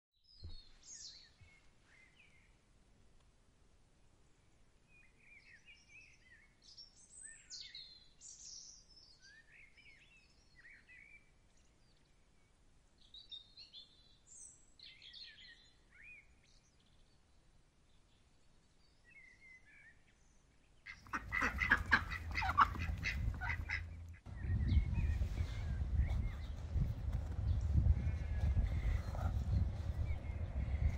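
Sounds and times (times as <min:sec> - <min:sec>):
small birds chirping: 0:04.9 - 0:30.9
ducks quacking loudly: 0:20.9 - 0:24.3.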